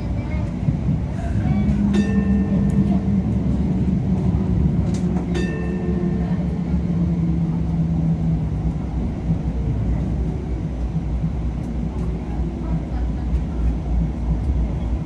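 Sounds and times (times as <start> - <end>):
light rail running rumble: 0.0 - 15.0
low hum: 1.4 - 13.2.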